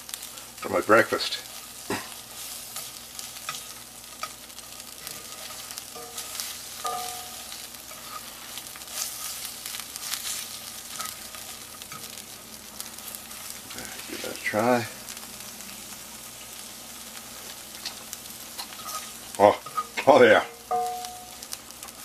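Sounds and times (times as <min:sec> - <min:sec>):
spinach sizzling in skillet: 0:00.0 - 0:22.0
fork scraping a pan: 0:05.0 - 0:12.1, 0:18.6 - 0:20.1.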